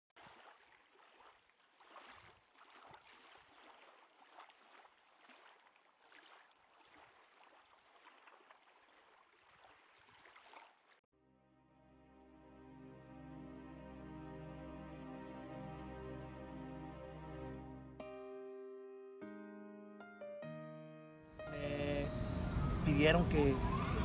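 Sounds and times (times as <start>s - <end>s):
faint waves washing: 0.2s - 11.0s, 21.4s - 24.0s.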